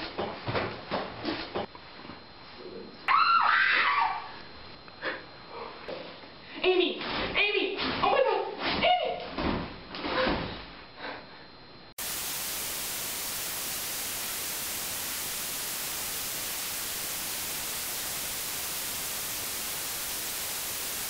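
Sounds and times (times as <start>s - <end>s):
static hiss: 12.0s - 21.0s.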